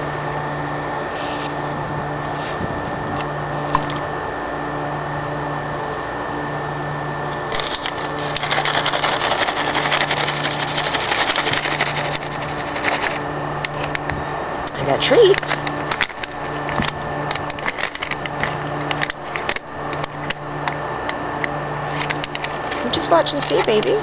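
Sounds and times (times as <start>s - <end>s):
machinery hum: 0.0s - 24.0s
crackling rustle with clicks: 7.3s - 14.1s, 15.2s - 24.0s.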